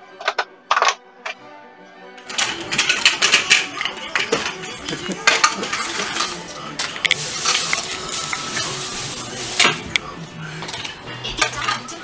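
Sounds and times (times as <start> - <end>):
small hard objects clicking: 2.2 - 8.7
rustling: 2.3 - 11.8.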